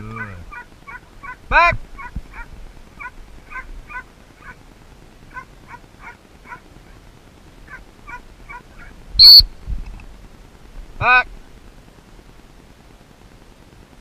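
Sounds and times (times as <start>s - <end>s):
faint short bird calls: 7.7s - 9.4s
loud dog-training whistle: 9.2s - 9.4s.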